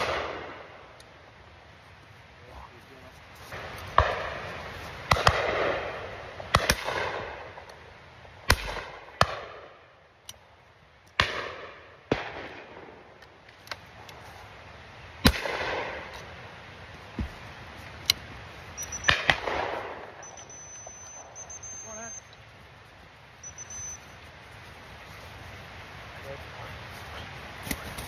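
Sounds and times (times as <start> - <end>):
shotgun shots: 0.0 - 0.7, 3.9 - 4.4, 5.1 - 7.6, 8.5 - 9.6, 11.2 - 13.0, 15.2 - 16.1, 19.0 - 20.3
rolling echo of gunshots: 0.0 - 0.8, 3.9 - 7.6, 8.4 - 9.7, 11.2 - 13.1, 15.2 - 16.1, 19.1 - 20.2.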